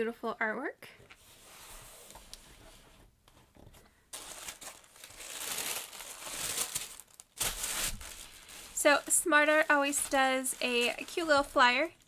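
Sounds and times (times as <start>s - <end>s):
tissue paper crinkling: 4.1s - 12.0s.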